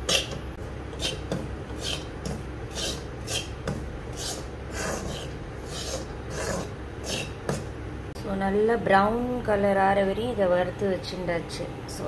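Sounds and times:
metal spoon scraping a wok: 1.0 - 7.6.

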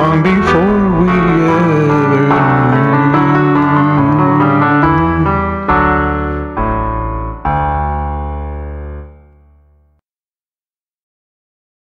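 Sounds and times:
electric piano chords: 0.0 - 9.9.

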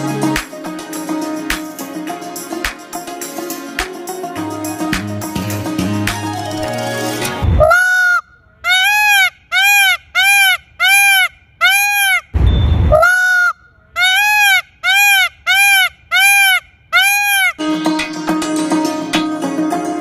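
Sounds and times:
peacock honking calls: 7.6 - 12.3, 13.0 - 17.6.

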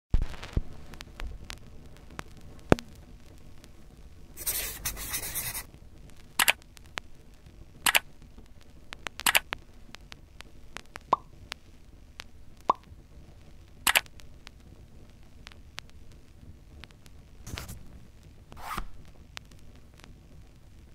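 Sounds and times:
sharp clicks and pops: 6.1 - 7.1, 7.8 - 11.6, 12.2 - 12.9, 13.8 - 14.6.

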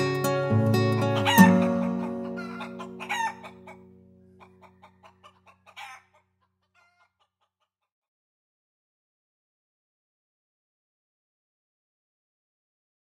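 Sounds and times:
classical guitar chord ringing: 0.0 - 4.3
chickens clucking and squawking: 1.1 - 7.8.

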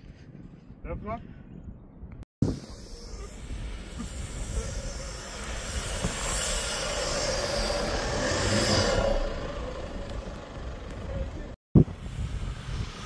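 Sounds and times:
off-road engine revving hard: 4.0 - 11.6.

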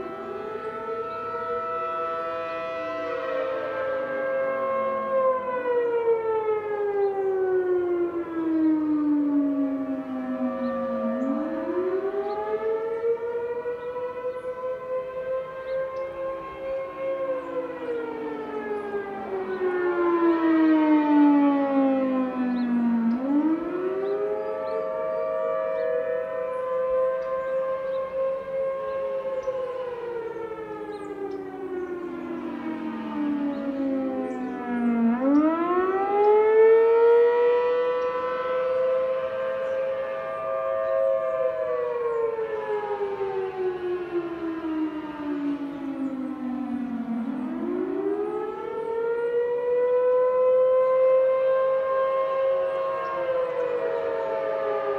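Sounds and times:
storm warning sirens wailing: 0.0 - 54.9.

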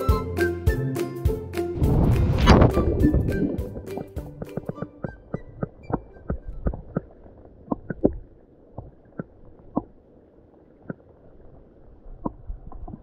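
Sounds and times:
muffled underwater rumble: 1.8 - 3.8
underwater clicks and knocks: 2.5 - 9.9.

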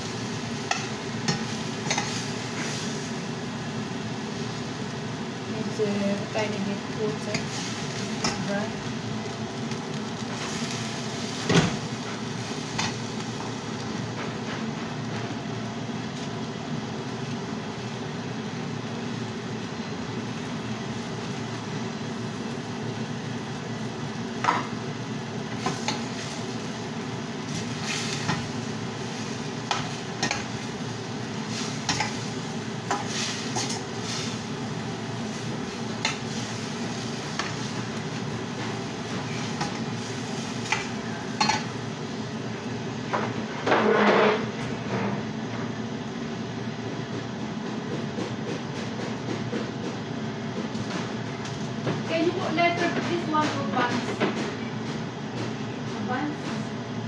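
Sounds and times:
food sizzling in a frying pan: 0.0 - 44.6.

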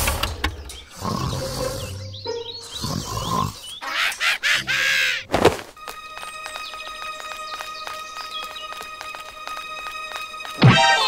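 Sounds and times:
growling grunting voice: 1.0 - 2.1, 2.7 - 4.0.

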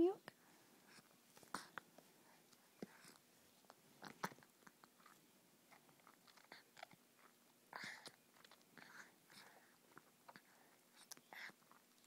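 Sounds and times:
baby sucking on milk bottle: 2.8 - 11.9.

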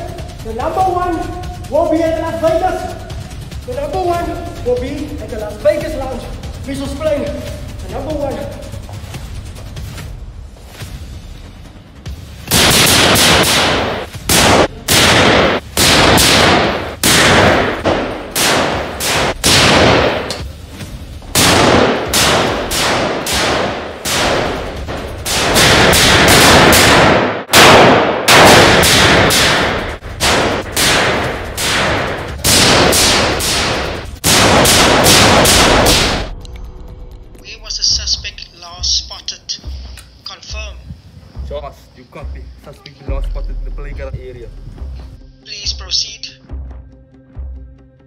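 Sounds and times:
pistol shots: 12.5 - 20.4, 21.4 - 36.3.

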